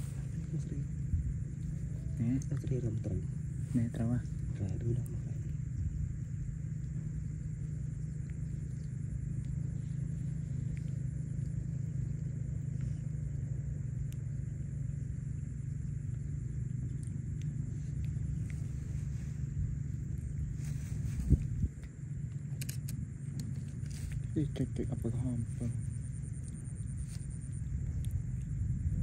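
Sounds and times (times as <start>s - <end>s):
steady low rumble: 0.0s - 29.0s
faint ticks: 4.4s - 19.1s.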